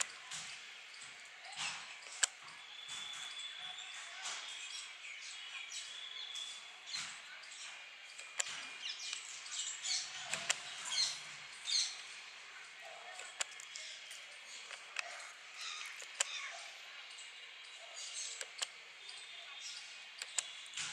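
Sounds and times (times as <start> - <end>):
birds chirping: 0.0 - 20.9.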